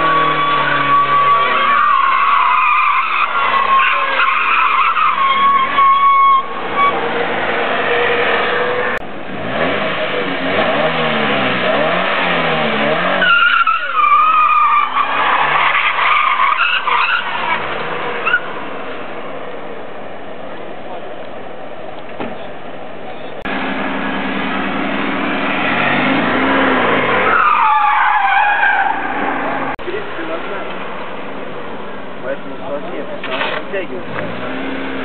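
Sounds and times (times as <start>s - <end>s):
tyres squealing: 0.0s - 9.0s, 12.4s - 18.6s, 25.6s - 29.8s
car engine revving: 6.4s - 18.8s, 23.4s - 30.8s.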